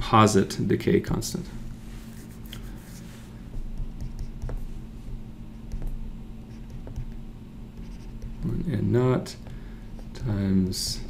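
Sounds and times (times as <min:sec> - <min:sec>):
stylus scratching on screen: 0:02.0 - 0:04.9, 0:05.6 - 0:08.7
stylus tapping on screen: 0:03.5 - 0:04.7, 0:05.6 - 0:07.2.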